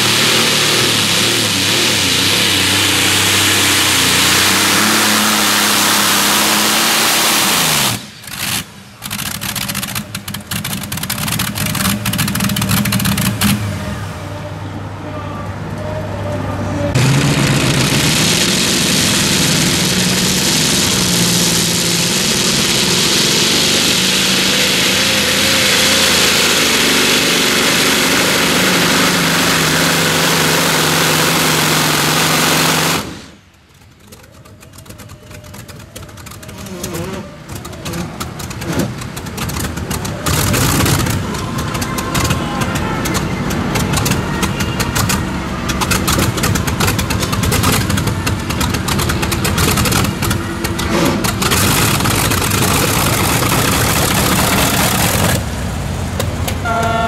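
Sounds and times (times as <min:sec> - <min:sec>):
tractor engine at full throttle: 0:00.0 - 0:57.0
engine idling with pops: 0:07.8 - 0:13.8, 0:31.4 - 0:57.0.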